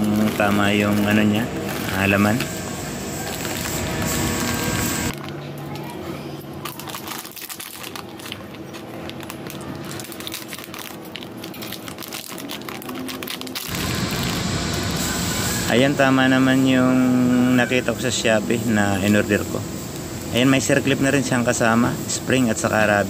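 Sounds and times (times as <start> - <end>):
scissors cutting plastic: 0.0 - 14.8
plastic bag crinkling: 0.0 - 19.5.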